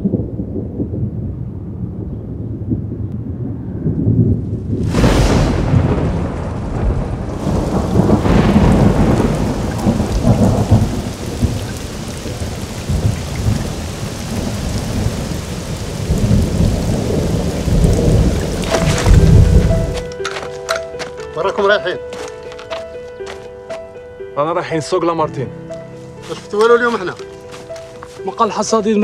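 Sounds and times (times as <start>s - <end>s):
low thunder rumbling: 0.0s - 20.2s
thunderclap: 0.0s - 20.2s
heavy rain: 3.4s - 23.4s, 26.0s - 29.0s.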